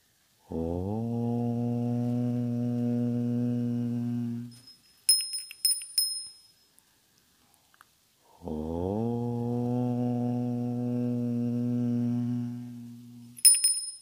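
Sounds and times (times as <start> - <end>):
sharp ringing clicks: 4.6 - 6.6, 13.4 - 14.0.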